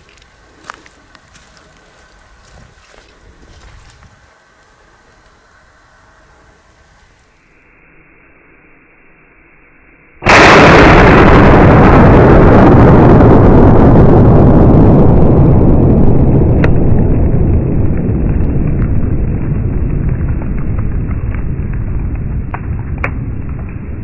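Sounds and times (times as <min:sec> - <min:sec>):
explosion rumble: 0:10.2 - 0:24.0
debris ticking down: 0:17.5 - 0:24.0.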